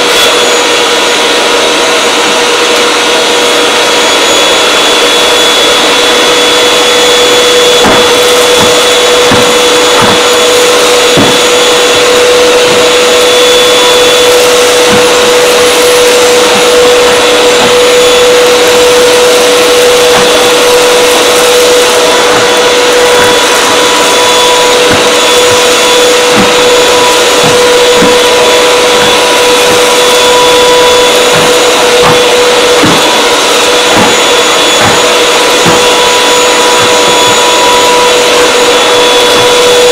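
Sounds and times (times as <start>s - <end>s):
vacuum cleaner running: 0.0s - 39.9s
vacuum nozzle on carpet: 0.0s - 39.9s
soft knocks: 26.3s - 33.2s.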